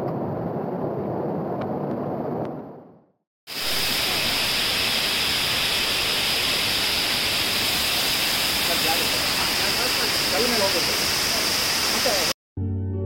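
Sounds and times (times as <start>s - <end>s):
waterfall hiss: 3.5s - 12.4s.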